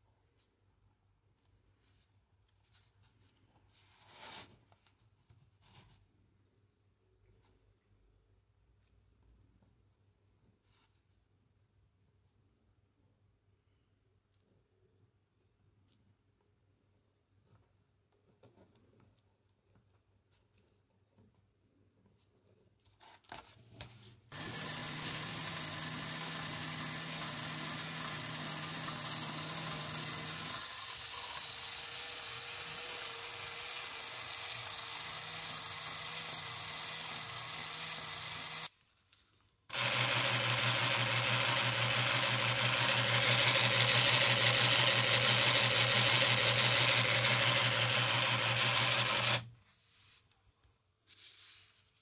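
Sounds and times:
small electric gear motor running: 24.3 - 38.7, 39.7 - 49.5.

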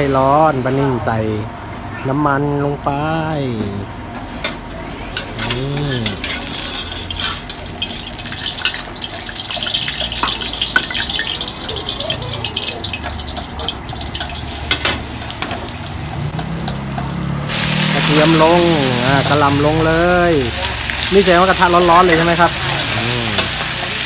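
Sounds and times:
oil crackling and spitting: 5.4 - 24.0
oil hissing in a wok: 5.6 - 24.0.

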